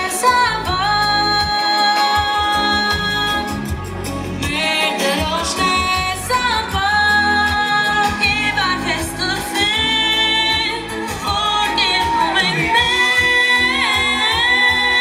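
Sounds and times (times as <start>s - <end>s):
amplified instrumental accompaniment: 0.0s - 15.0s
young singers singing pop song: 0.0s - 15.0s.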